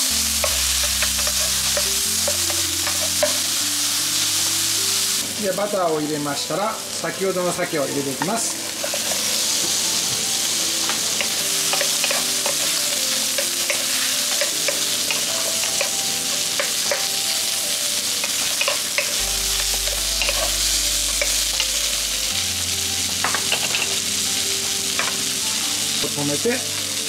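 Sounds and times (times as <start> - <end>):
food sizzling in a frying pan: 0.0 - 27.0
utensils scraping a pan: 8.4 - 9.7, 10.8 - 17.1, 18.2 - 19.2, 19.8 - 20.6.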